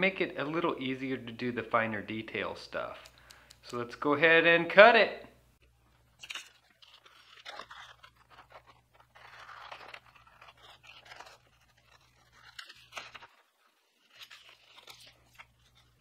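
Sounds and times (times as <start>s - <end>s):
paper rustling: 5.6s - 16.0s
scissors snipping paper: 6.2s - 16.0s.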